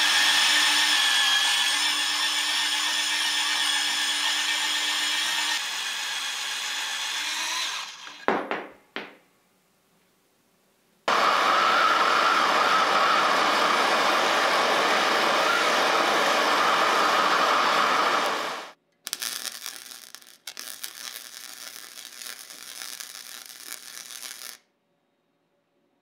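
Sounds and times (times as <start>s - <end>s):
gas torch flame hissing: 11.1s - 18.8s
welding arc crackling: 14.5s - 24.6s.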